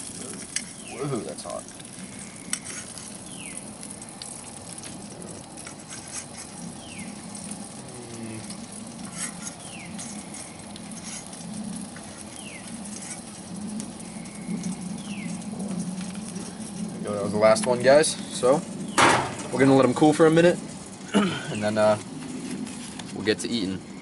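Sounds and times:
butter sizzling in a frying pan: 0:00.0 - 0:24.0.

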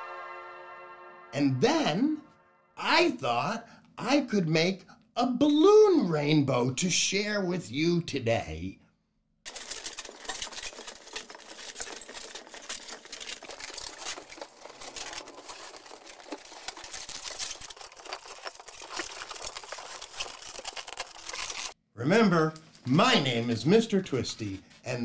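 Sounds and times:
balloons rubbing and creaking: 0:09.5 - 0:21.8.

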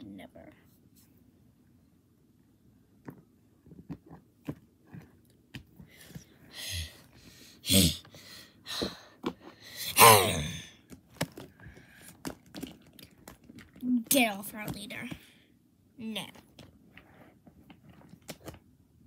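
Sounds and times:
person making vocal fight noises: 0:07.6 - 0:08.0, 0:09.8 - 0:10.7.

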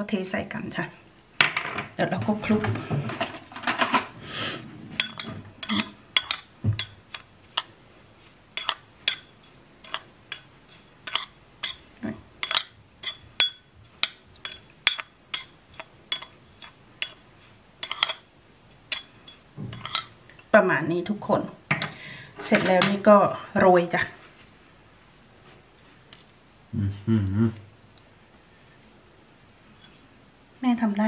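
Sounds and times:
spoon clinking against ceramic bowl: 0:05.0 - 0:07.7, 0:08.6 - 0:11.8, 0:12.4 - 0:17.2, 0:17.8 - 0:18.3, 0:18.9 - 0:20.2.

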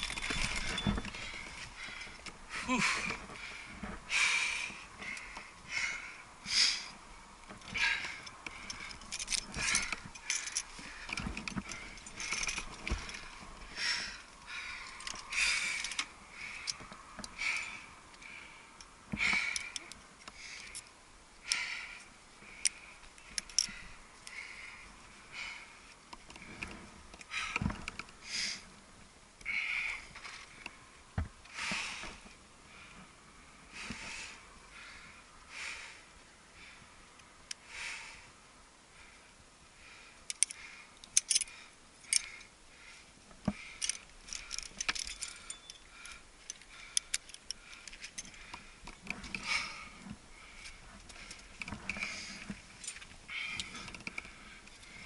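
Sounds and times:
metal climbing gear clinking: 0:00.0 - 0:28.5, 0:40.3 - 0:42.6, 0:43.4 - 0:55.0
heavy breathing: 0:00.1 - 0:07.0, 0:07.6 - 0:28.7, 0:31.5 - 0:37.0, 0:37.6 - 0:55.0.

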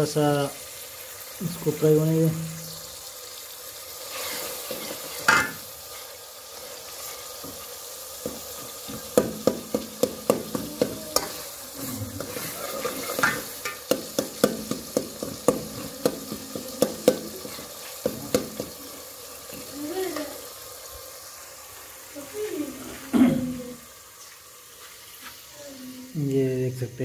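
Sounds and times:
vegetables sizzling in a pot: 0:00.0 - 0:27.0
metal spoon scraping and knocking pot: 0:12.2 - 0:18.7.

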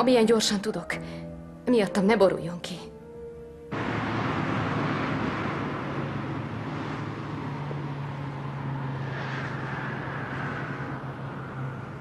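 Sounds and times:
low engine drone: 0:03.7 - 0:12.0
road traffic rushing: 0:03.7 - 0:12.0
vehicle passing close: 0:03.7 - 0:12.0.

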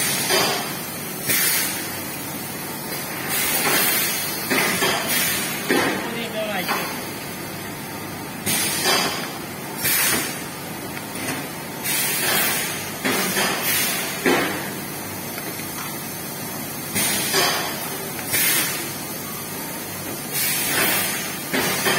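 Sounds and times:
steady machine background: 0:00.0 - 0:21.9
short air blast hisses: 0:09.8 - 0:10.4, 0:11.8 - 0:14.2, 0:18.3 - 0:18.8.

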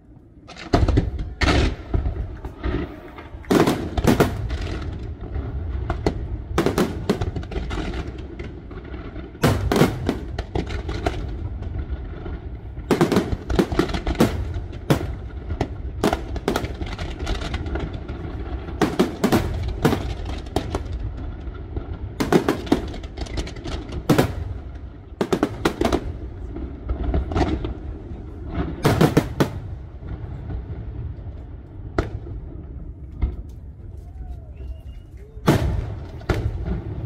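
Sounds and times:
continuous low rumble: 0:00.0 - 0:37.0
fireworks bangs: 0:00.4 - 0:37.0.

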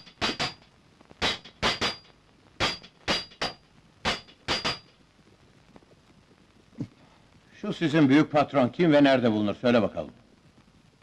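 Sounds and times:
hammer striking metal: 0:00.0 - 0:00.6, 0:01.2 - 0:04.9.

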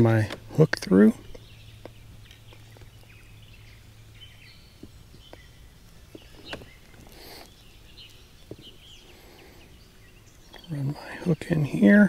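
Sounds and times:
distant bird chirps: 0:00.0 - 0:12.0
brief rustle: 0:06.1 - 0:07.5.

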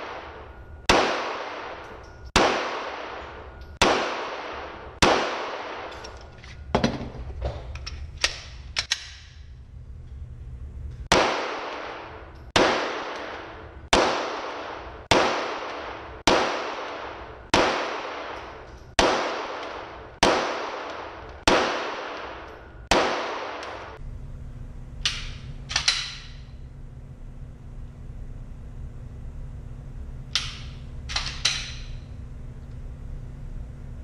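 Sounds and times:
pistol shots reverberating indoors: 0:00.0 - 0:07.1, 0:07.8 - 0:09.7, 0:11.0 - 0:24.0, 0:25.0 - 0:26.7, 0:27.6 - 0:33.7.

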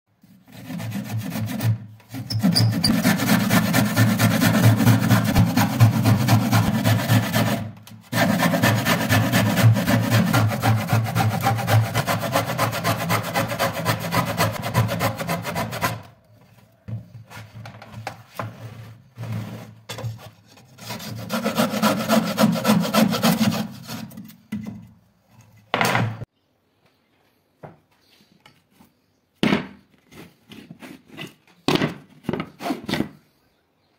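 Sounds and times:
hand saw cutting plywood: 0:00.3 - 0:16.2, 0:18.4 - 0:24.4, 0:30.0 - 0:31.4, 0:32.4 - 0:33.2.

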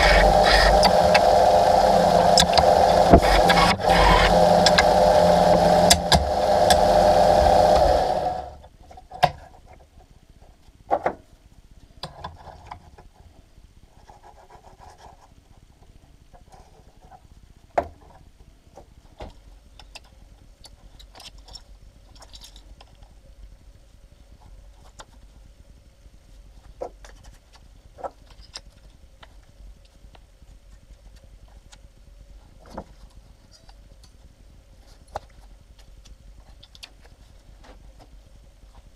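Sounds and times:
band saw cutting metal: 0:00.0 - 0:08.6.

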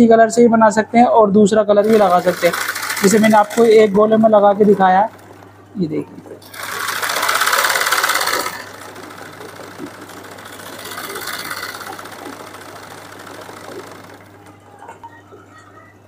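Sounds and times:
sewing machine stitching: 0:01.8 - 0:05.5, 0:06.4 - 0:14.8.

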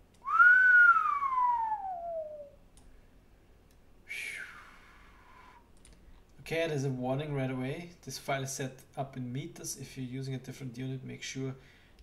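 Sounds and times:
breathy falling whistle: 0:00.2 - 0:02.6, 0:04.1 - 0:05.6
person whistling: 0:00.2 - 0:02.6, 0:04.1 - 0:05.6.

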